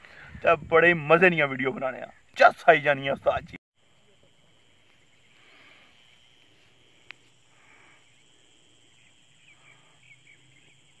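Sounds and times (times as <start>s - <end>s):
high insect trill: 0.1s - 11.0s
faint bird chirps: 7.1s - 11.0s.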